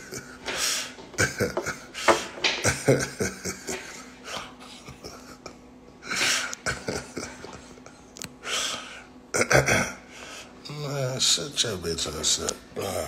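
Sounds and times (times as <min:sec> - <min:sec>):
man breathing: 0:00.5 - 0:01.1, 0:08.4 - 0:09.2, 0:10.1 - 0:10.6
man coughing: 0:09.4 - 0:10.1.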